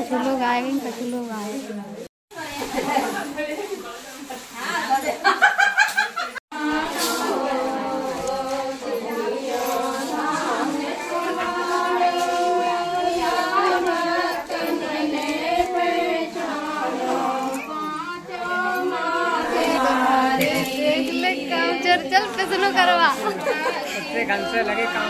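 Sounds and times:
women singing in chorus: 6.5s - 25.0s.

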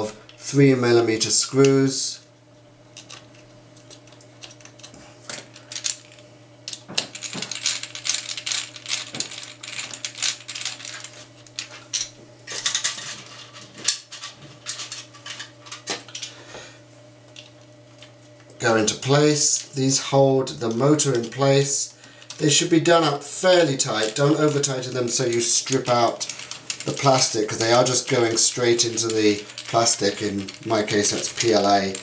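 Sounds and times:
screws and plastic parts rattling: 2.9s - 16.3s, 20.6s - 22.7s, 23.4s - 32.0s.

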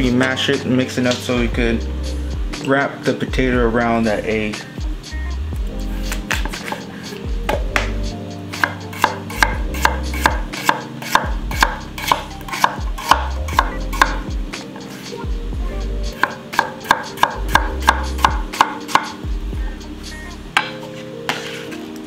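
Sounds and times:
knife chopping on wooden board: 8.6s - 14.2s, 16.2s - 19.2s.

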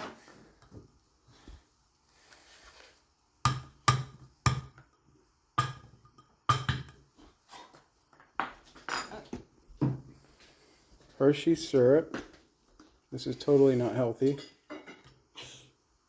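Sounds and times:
metal spoon knocking on cups: 5.6s - 7.1s.

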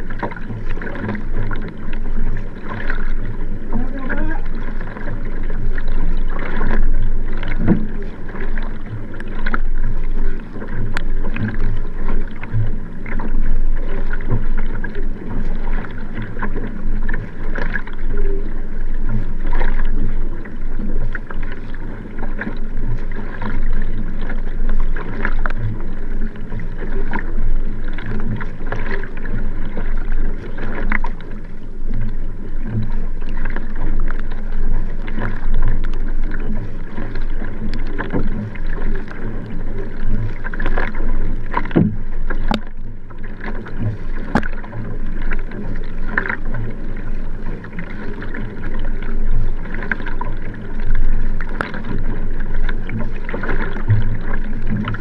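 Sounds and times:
paddle strokes through water: 0.0s - 55.0s
water rushing along hull: 0.0s - 55.0s.

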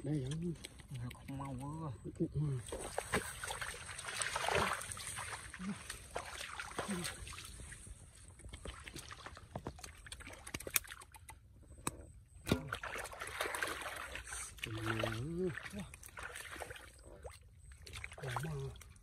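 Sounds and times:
wet splats in muddy water: 2.6s - 7.7s, 8.4s - 19.0s
boots squelching through mud: 2.6s - 10.5s.

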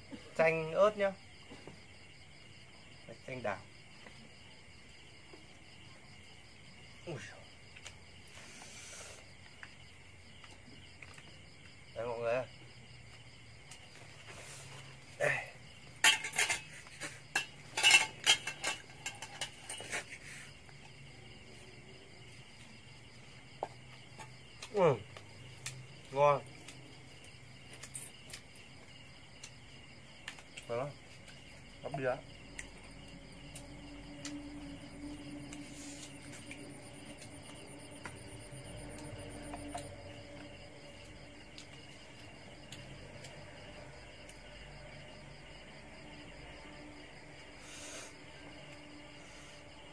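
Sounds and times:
crickets chirring: 0.0s - 49.9s
short hiss: 8.4s - 9.2s
clinks and scrapes on ceramic bowl: 15.9s - 20.2s
low steady hum: 32.3s - 47.2s.

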